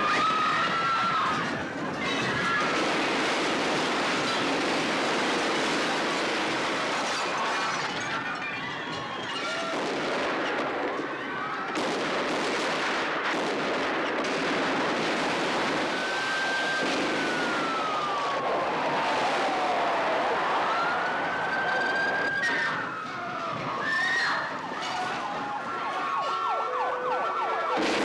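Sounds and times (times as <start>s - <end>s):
people screaming: 0.0s - 2.9s, 7.1s - 9.9s, 10.9s - 11.8s, 15.8s - 27.8s.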